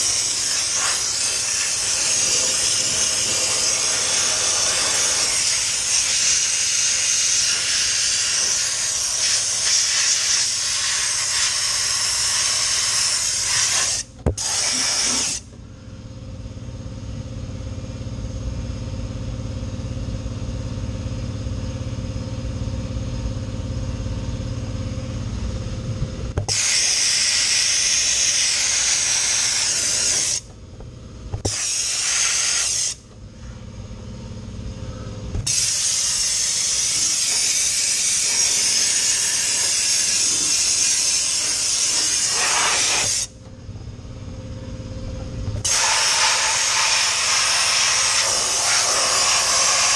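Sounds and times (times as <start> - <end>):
dry ice blaster hissing: 0.0 - 15.5, 26.4 - 30.5, 31.3 - 33.0, 35.4 - 43.3, 45.6 - 49.9
steady machine hum: 0.0 - 49.9.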